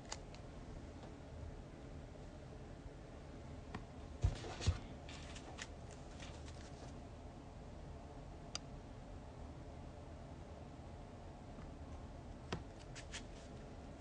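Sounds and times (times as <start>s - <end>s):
rustling: 4.2s - 7.0s.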